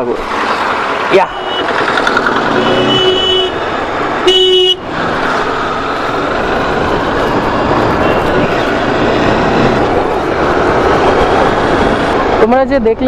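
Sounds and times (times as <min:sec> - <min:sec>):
motorcycle engine and road noise: 0:00.0 - 0:13.0
wind rush: 0:00.2 - 0:13.0
vehicle horn blast: 0:01.3 - 0:01.8, 0:02.5 - 0:03.6, 0:04.2 - 0:04.8, 0:08.0 - 0:08.7.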